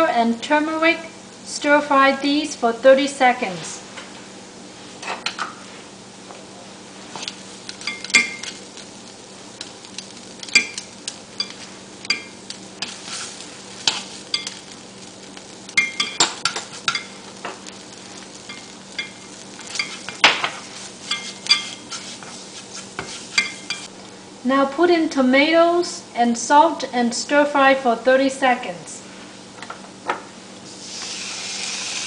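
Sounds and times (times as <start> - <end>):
light sizzling: 0.0 - 32.0
steady low hum: 0.0 - 32.0
spatula scraping frying pan: 10.4 - 14.7, 18.1 - 23.9.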